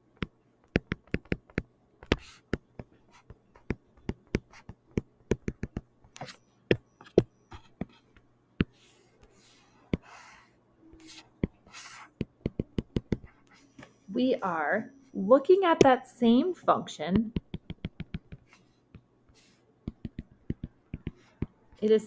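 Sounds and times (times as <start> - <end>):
stylus tapping on touchscreen: 0.2 - 8.0, 11.4 - 13.3, 17.2 - 19.1, 19.9 - 21.6
stylus scratching strokes: 7.0 - 13.8.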